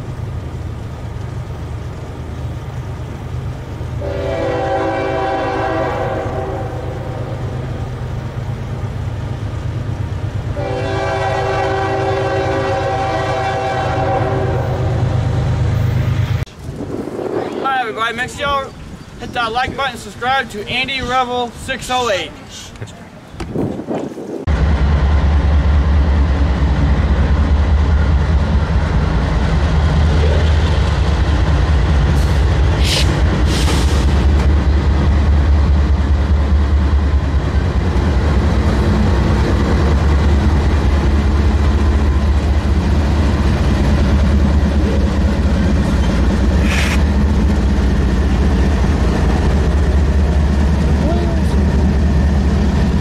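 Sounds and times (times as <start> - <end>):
diesel locomotive engine drone: 0.0 - 53.0
brief high hisses: 32.8 - 34.0, 46.6 - 47.0.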